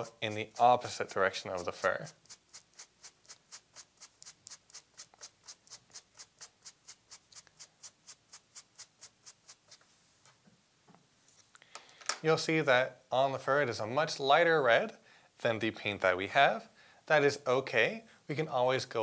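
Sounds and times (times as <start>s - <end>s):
hairbrush bristles scratching fur: 0.0s - 10.0s.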